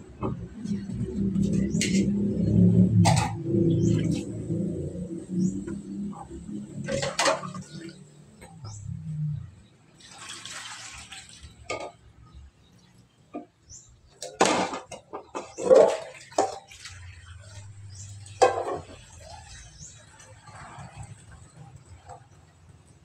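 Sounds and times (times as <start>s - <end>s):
water splashing and pouring: 0.5s - 9.0s, 9.8s - 12.4s, 14.3s - 23.0s
dishes clinking and knocking: 2.9s - 4.2s, 6.8s - 8.6s, 11.7s - 12.0s, 14.2s - 16.8s, 18.1s - 19.1s.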